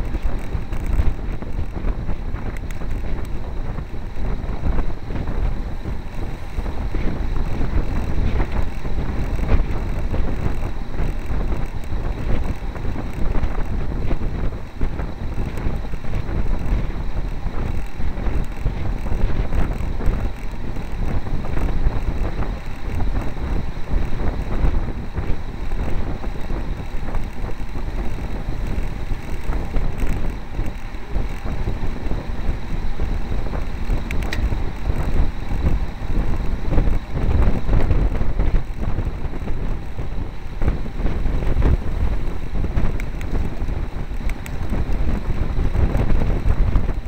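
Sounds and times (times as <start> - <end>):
wind buffeting microphone: 0.0 - 47.0.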